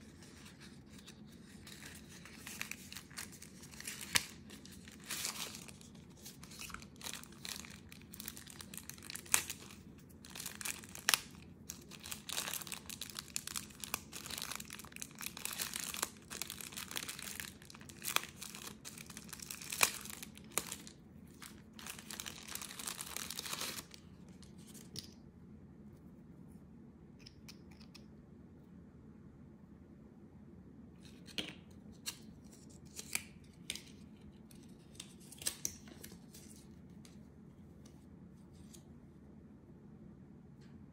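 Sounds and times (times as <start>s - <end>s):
paper wrapping crinkling: 0.0s - 25.0s.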